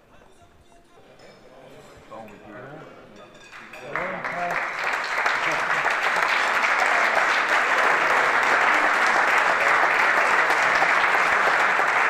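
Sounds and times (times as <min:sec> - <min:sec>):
people clapping: 0:03.4 - 0:12.0.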